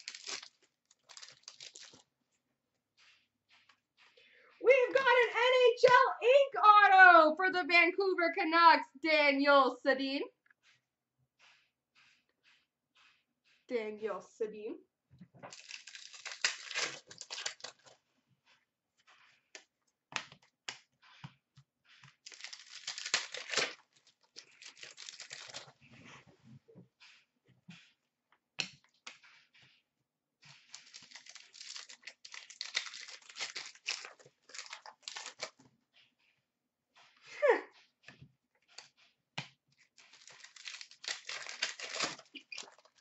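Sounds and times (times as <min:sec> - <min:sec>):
card packs being torn open: 0:00.0 - 0:02.1, 0:15.5 - 0:18.0, 0:22.2 - 0:25.8, 0:30.7 - 0:35.6, 0:40.0 - 0:43.0
cards sliding and flicking: 0:00.0 - 0:02.1, 0:11.4 - 0:13.6, 0:15.5 - 0:17.9
crinkling wrappers: 0:00.0 - 0:02.2, 0:15.5 - 0:18.0, 0:22.0 - 0:25.9, 0:30.5 - 0:35.6, 0:39.8 - 0:43.0.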